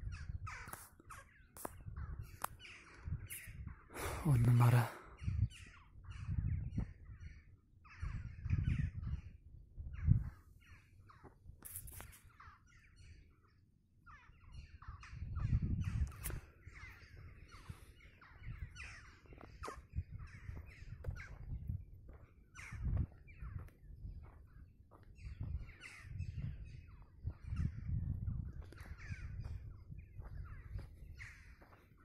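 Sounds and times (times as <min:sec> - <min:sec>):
crow-like birds calling: 0:00.0 - 0:32.0.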